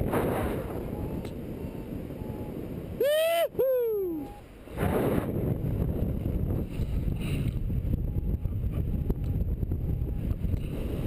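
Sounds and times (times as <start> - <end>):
wind buffeting microphone: 0.0 - 11.0
faint short beeps: 0.8 - 2.6, 4.1 - 4.5.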